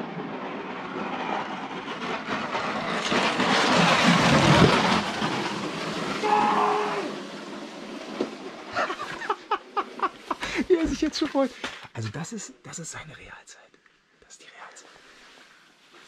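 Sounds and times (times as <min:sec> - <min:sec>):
sled scraping down ice track: 0:00.0 - 0:12.2.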